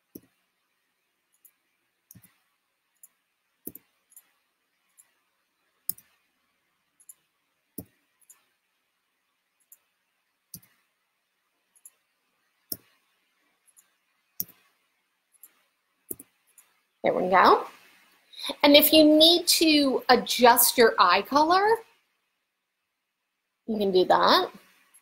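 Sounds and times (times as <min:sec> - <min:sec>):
faint computer mouse clicks: 0:01.3 - 0:02.4, 0:03.0 - 0:05.2, 0:05.9 - 0:06.2, 0:09.6 - 0:09.9, 0:10.5 - 0:10.8, 0:11.8 - 0:12.0, 0:12.7 - 0:13.0, 0:13.7 - 0:14.7, 0:15.3 - 0:16.8.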